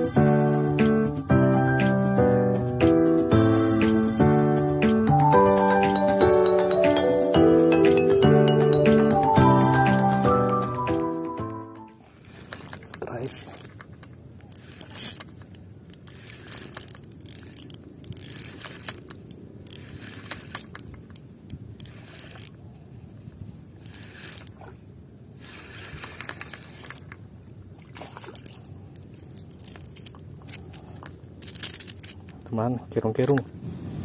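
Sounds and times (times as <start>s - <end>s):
fishing reel clicking and whirring: 12.4s - 22.6s, 23.8s - 24.6s, 25.4s - 27.2s, 28.3s - 32.3s.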